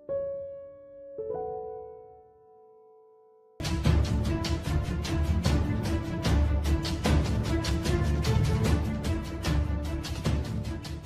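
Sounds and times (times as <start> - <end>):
tense music with heavy drum hits: 3.6 - 11.0.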